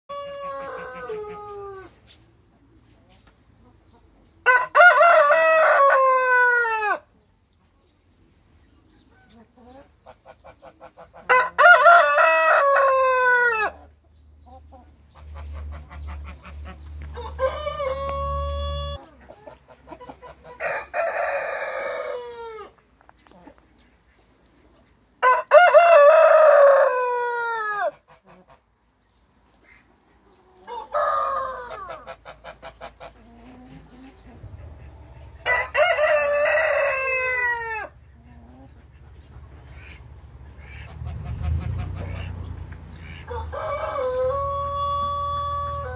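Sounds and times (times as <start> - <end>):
roosters crowing: 0.1 - 2.1, 4.4 - 7.1, 11.2 - 13.9, 16.0 - 19.1, 20.4 - 22.8, 25.2 - 28.2, 30.6 - 33.1, 35.1 - 38.1, 40.6 - 45.9.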